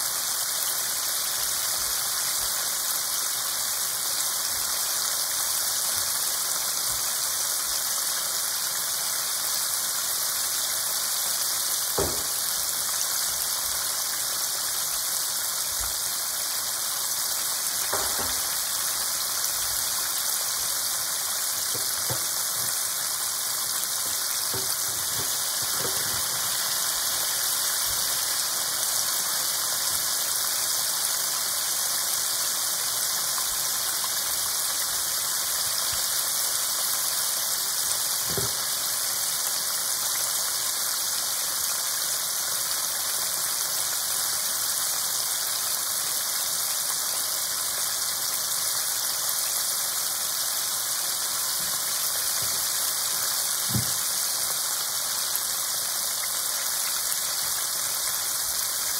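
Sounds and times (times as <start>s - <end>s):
chicken deep-frying in oil: 0.0s - 58.9s
oil popping: 21.6s - 28.1s.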